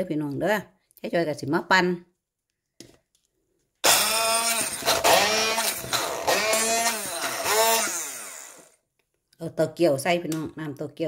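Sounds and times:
stick blender chopping: 3.8s - 8.7s.

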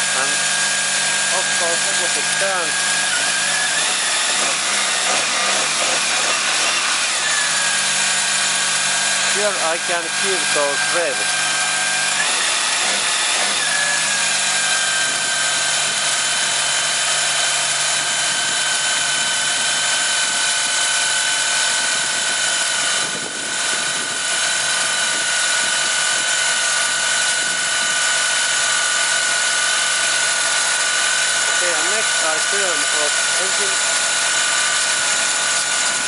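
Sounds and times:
car engine idling: 0.0s - 19.4s, 20.0s - 36.0s
steady high whine: 0.0s - 28.5s.

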